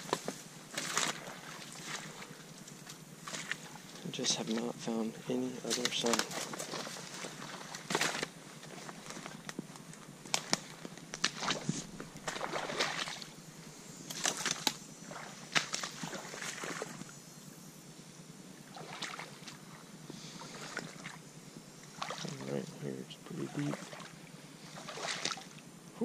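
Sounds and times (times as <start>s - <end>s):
rustling vegetation: 0.0s - 26.0s
boots sloshing through water: 0.7s - 2.4s, 3.2s - 3.8s, 5.7s - 9.4s, 10.4s - 13.4s, 14.1s - 17.0s, 18.6s - 19.8s, 20.5s - 21.2s, 21.9s - 22.5s, 23.6s - 25.6s.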